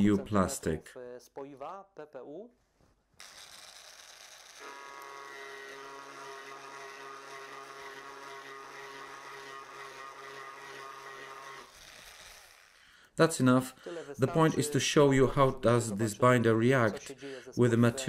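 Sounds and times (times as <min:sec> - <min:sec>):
rotary tool cutting plastic: 0:03.2 - 0:12.9.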